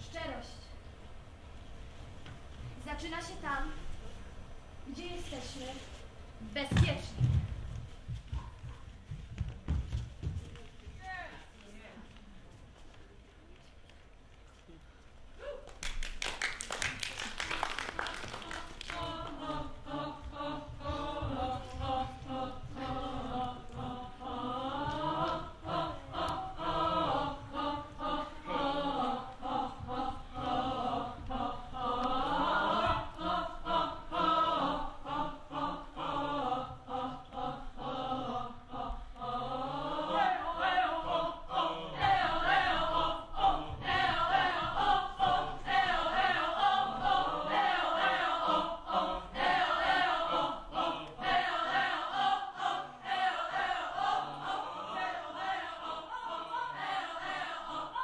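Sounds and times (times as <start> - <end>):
group singing unaccompanied: 17.8 - 58.0.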